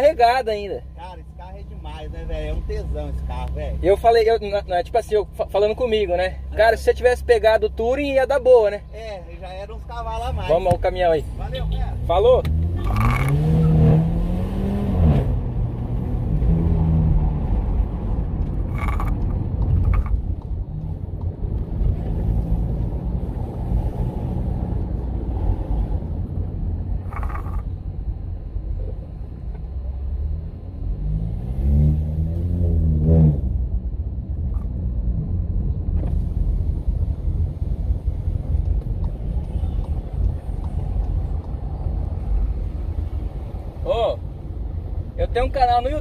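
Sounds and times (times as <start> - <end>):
car engine and road rumble: 0.0 - 46.0.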